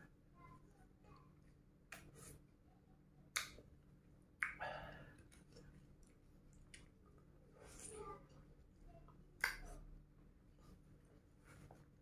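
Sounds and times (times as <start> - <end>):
mouth smacks: 4.4 - 5.6.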